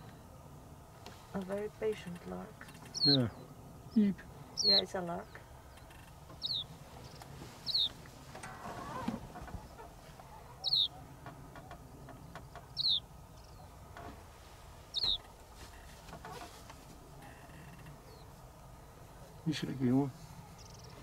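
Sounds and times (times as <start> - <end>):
lark calling: 2.9 - 3.5, 5.8 - 8.0, 8.7 - 11.1, 12.7 - 13.6, 14.9 - 15.2.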